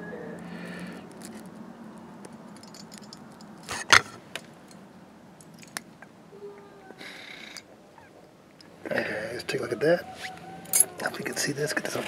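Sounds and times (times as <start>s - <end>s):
metal clatter: 2.5s - 4.8s.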